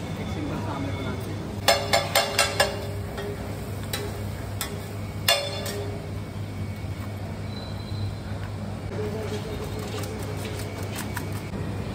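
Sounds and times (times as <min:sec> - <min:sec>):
steady low hum: 0:00.0 - 0:11.9
metal spatula clinking on griddle: 0:01.6 - 0:06.0.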